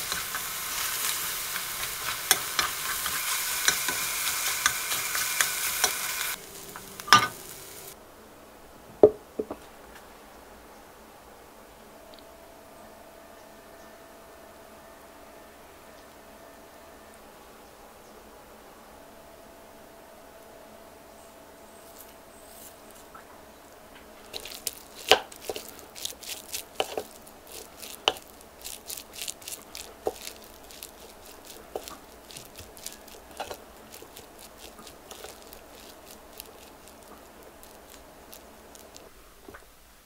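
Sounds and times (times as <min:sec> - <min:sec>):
sticky rice squishing: 0:00.0 - 0:08.0, 0:24.2 - 0:39.1.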